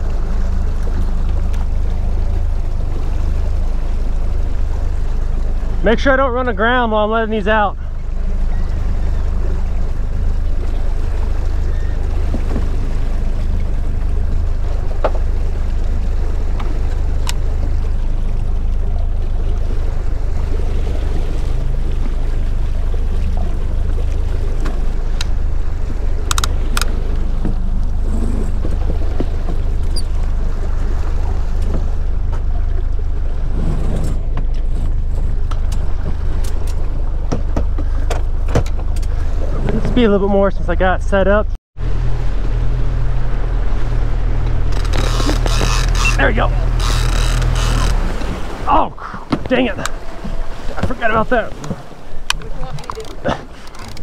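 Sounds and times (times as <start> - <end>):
outboard motor droning: 0.0 - 54.0
water rushing past hull: 0.0 - 54.0
sharp clicks: 26.3 - 26.9.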